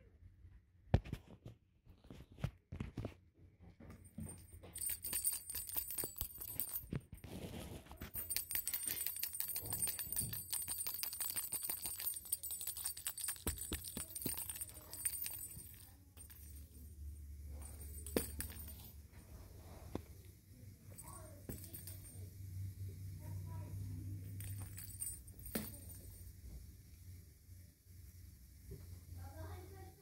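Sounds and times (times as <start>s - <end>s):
small bell jingling and rattling: 4.0s - 26.6s.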